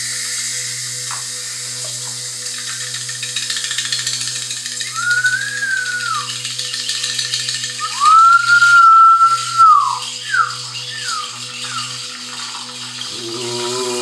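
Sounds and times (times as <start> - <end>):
hand-held whistle: 4.8 - 6.4, 7.8 - 12.1
deep droning tone: 7.6 - 14.0.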